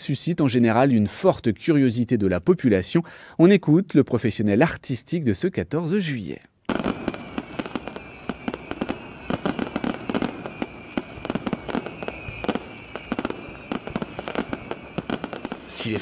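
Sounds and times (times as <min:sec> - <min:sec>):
fireworks bangs and crackles: 0:06.7 - 0:16.0
high steady whistle: 0:06.9 - 0:16.0.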